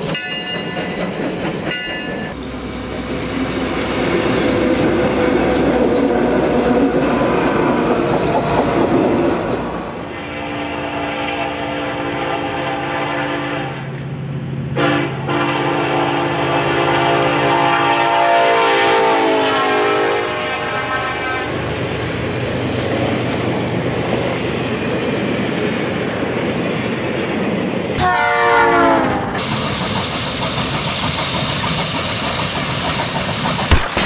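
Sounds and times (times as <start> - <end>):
train rolling on rails: 0.0 - 34.0
train air horn: 10.1 - 13.9, 14.8 - 21.7, 28.0 - 29.4.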